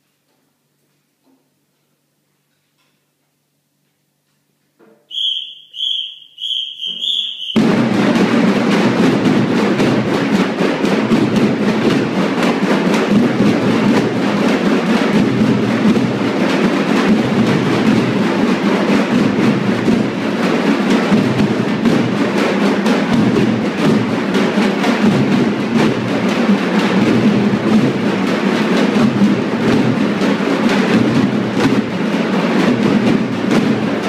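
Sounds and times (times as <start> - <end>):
short high-pitched sounds: 5.1 - 7.6
dhol drums playing: 6.4 - 14.5.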